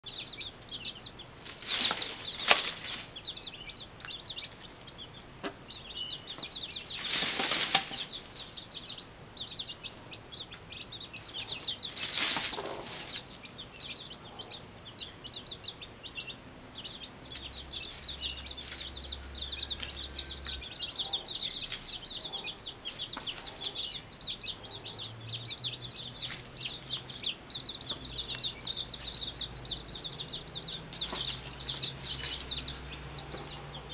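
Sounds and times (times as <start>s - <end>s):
chicks peeping: 0.0s - 33.9s
loud rustling bursts: 1.4s - 3.2s, 6.8s - 8.4s, 11.9s - 13.4s.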